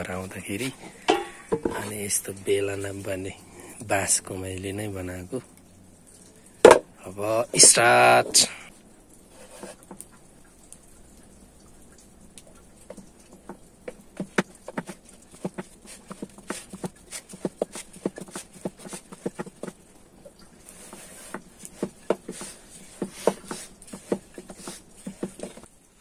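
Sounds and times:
soft rubbing of dough: 0.0s - 5.4s, 7.2s - 10.0s, 12.2s - 25.7s
rolling pin tapping on board: 13.4s - 19.8s, 20.9s - 25.6s.

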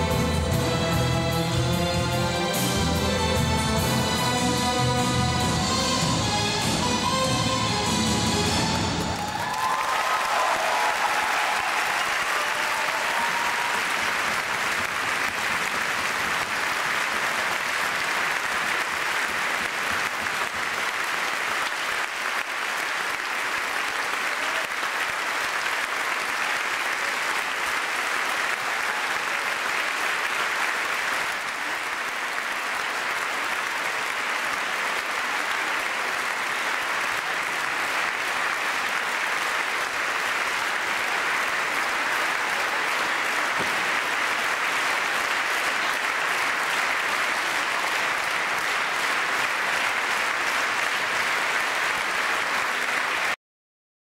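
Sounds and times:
audience applauding: 8.4s - 53.4s.

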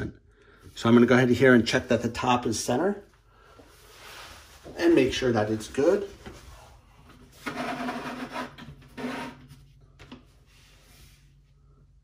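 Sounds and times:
monitor base scraping on desk: 7.4s - 9.5s.

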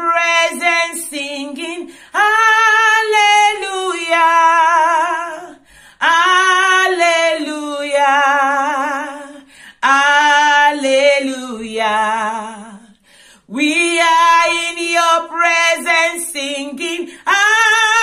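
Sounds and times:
woman singing unaccompanied: 0.0s - 18.0s.

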